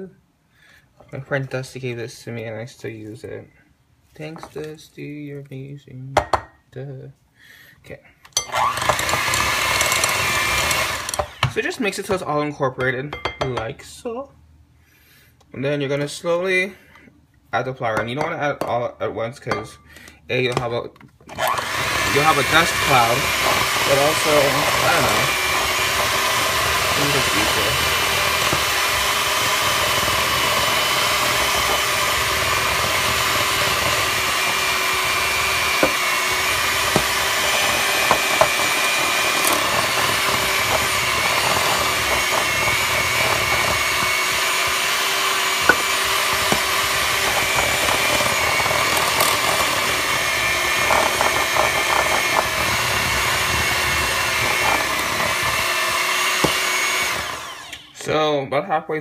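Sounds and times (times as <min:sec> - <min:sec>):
electric hand mixer running: 0:08.5 - 0:11.6, 0:21.3 - 0:58.0.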